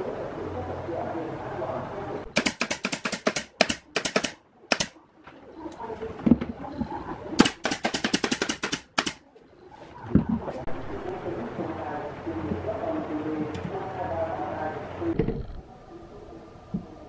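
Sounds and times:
nail gun firing: 2.3s - 5.0s, 7.4s - 9.2s.

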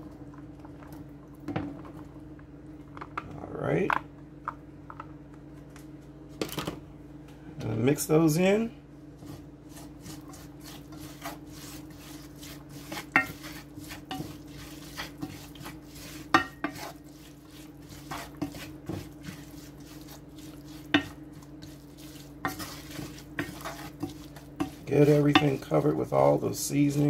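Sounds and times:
utensil scraping and knocking cookware: 12.4s - 17.0s, 22.4s - 26.0s.

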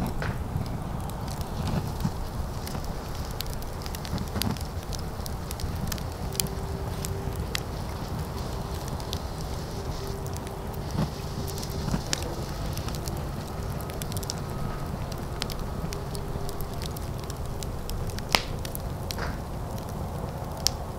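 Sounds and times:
fire crackling: 0.0s - 20.9s
low rumble: 0.0s - 20.9s.

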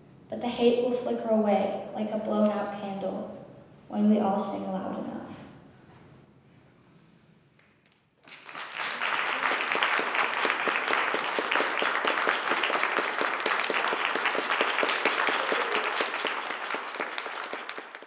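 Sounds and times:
audience applauding: 8.2s - 18.0s.

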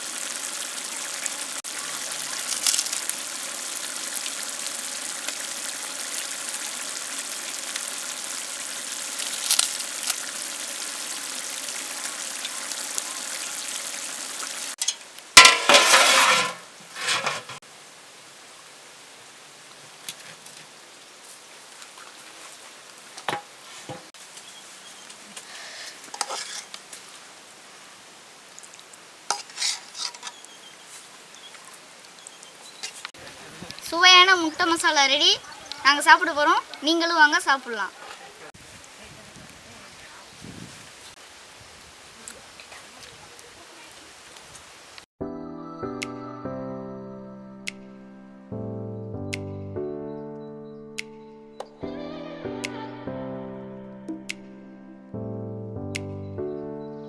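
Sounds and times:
gravy sizzling in a pot: 0.0s - 17.6s, 23.3s - 27.3s, 28.8s - 33.2s.

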